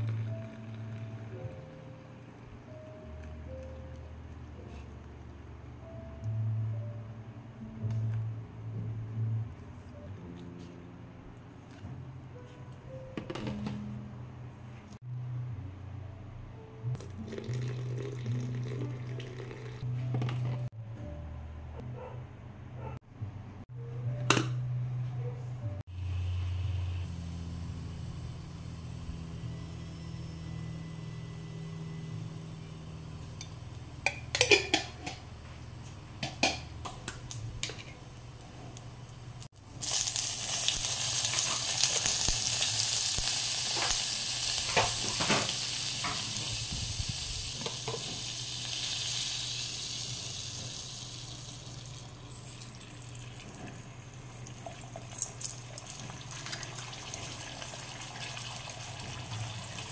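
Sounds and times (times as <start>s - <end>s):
butter sizzling in a pot: 39.6s - 51.9s.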